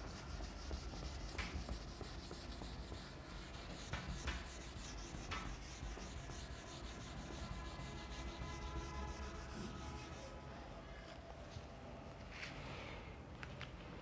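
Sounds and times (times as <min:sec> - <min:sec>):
eraser rubbing on whiteboard: 0:00.0 - 0:10.4.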